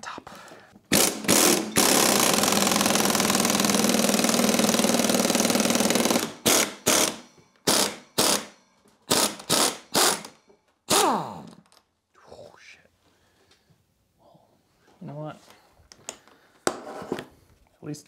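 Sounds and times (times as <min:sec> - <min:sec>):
pneumatic impact wrench hammering: 0:00.9 - 0:11.1.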